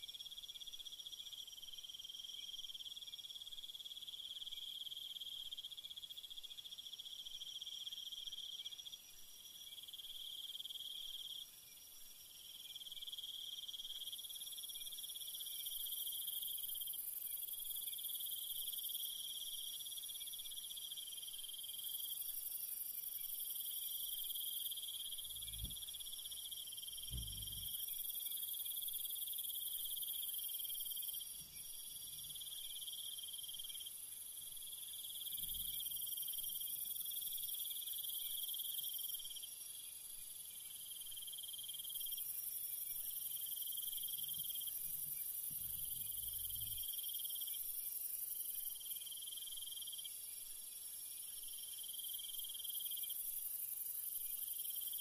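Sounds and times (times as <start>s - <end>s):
shrill high insect layer: 0.1s - 55.0s
insects trilling: 12.7s - 50.2s
faint low thumps: 27.1s - 27.7s.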